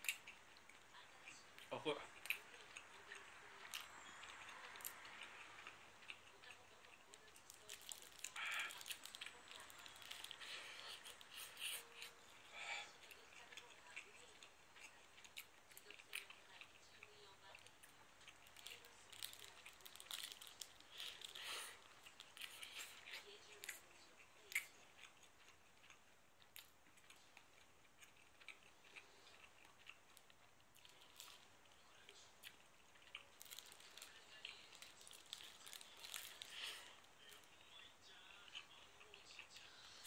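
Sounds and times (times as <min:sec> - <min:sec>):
plastic wrapper crinkling: 0:33.4 - 0:36.8.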